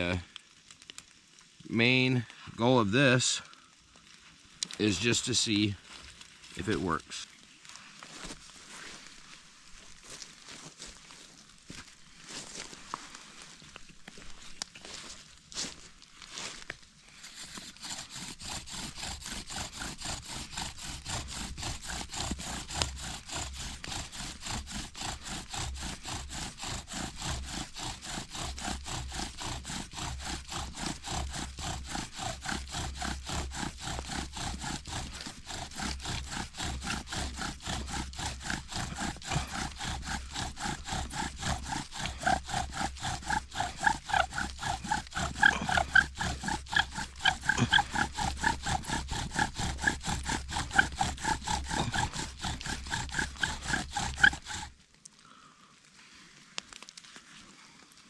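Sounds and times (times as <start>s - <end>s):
bow drill spindle squeaking: 17.4s - 54.7s.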